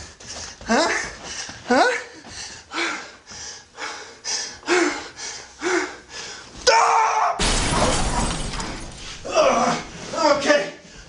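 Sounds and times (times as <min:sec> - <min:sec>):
person breathing hard: 0:00.0 - 0:06.6.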